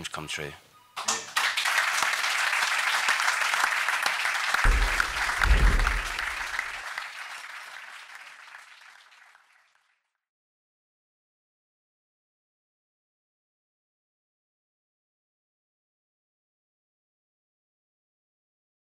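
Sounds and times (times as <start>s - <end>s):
audience applauding: 1.0s - 10.1s
deep rumble: 4.7s - 6.6s.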